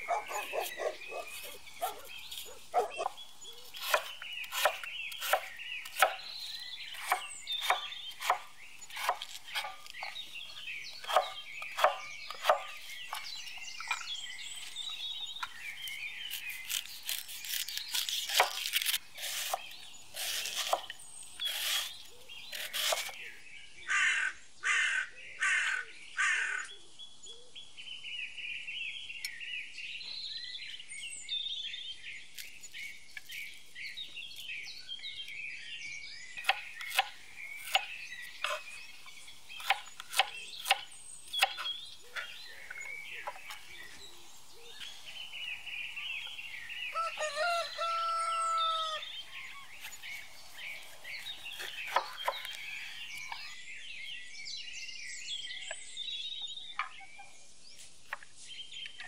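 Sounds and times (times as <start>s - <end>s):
small birds chirping and singing: 0.0s - 59.0s
knife chopping on wooden board: 3.8s - 6.2s, 6.9s - 10.2s, 11.0s - 13.3s, 36.4s - 38.6s, 39.5s - 42.3s, 51.6s - 52.5s
rooster crowing: 46.9s - 49.1s.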